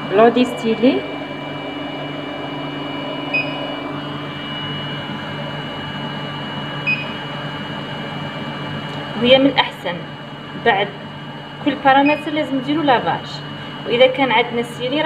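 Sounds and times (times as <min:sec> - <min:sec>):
analyzer humming: 0:00.0 - 0:12.9
short electronic beeps: 0:03.3 - 0:03.7.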